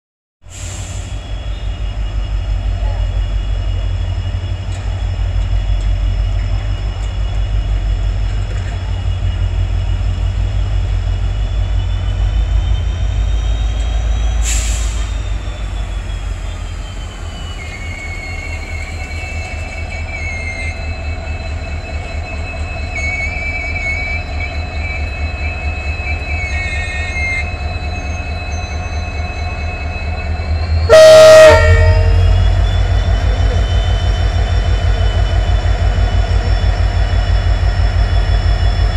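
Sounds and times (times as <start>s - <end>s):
diesel locomotive engine rumbling: 0.4s - 38.9s
wheel squeal: 0.6s - 38.9s
high whining tones: 11.0s - 38.9s
locomotive horn: 30.9s - 32.6s.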